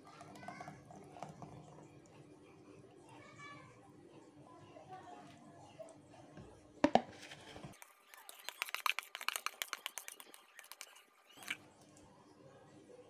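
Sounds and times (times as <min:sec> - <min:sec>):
plastic knocking and clicking: 0:06.8 - 0:07.1
batter pouring into plastic jug: 0:07.4 - 0:11.6.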